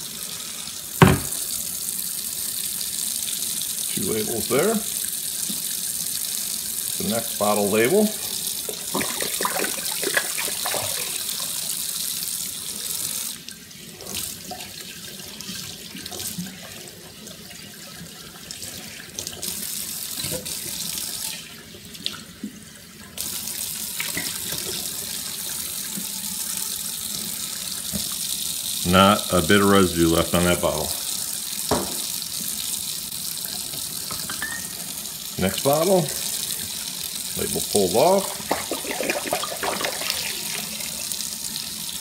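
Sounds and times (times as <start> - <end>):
faucet running into a sink: 0.0 - 42.0
water running into glass bottle: 37.4 - 40.9.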